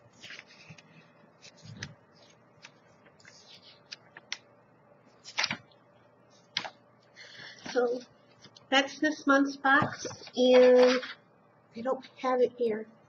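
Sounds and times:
magazine pages rustling: 0.0s - 4.4s, 5.2s - 5.7s.

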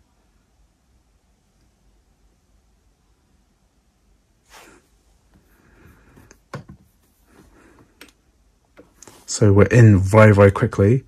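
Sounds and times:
soft rustle: 4.4s - 8.1s, 8.7s - 9.5s.

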